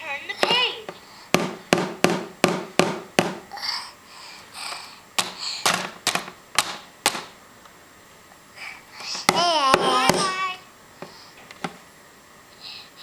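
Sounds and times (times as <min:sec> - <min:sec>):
toy banging on plastic toy: 0:05.2 - 0:07.3.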